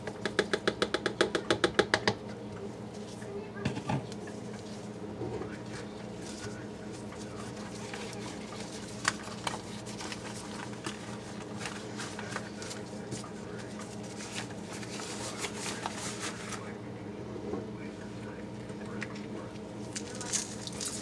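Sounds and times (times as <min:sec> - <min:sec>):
rubber gloves rustling and snapping: 0:07.5 - 0:12.8.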